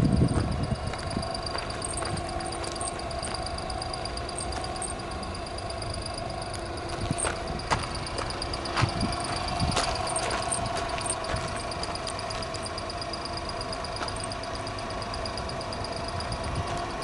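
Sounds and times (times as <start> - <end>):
small engine idling: 0.0 - 17.0
footsteps on gravel: 0.3 - 3.4, 6.9 - 12.5.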